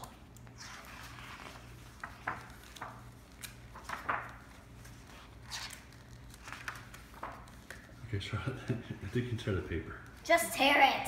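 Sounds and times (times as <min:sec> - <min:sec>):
wrapping paper crinkling: 0:00.0 - 0:08.3.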